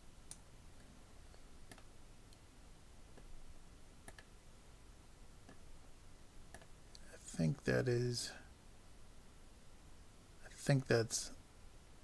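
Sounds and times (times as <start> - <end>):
computer mouse clicks: 1.6 - 2.4, 4.0 - 4.3, 6.5 - 7.0.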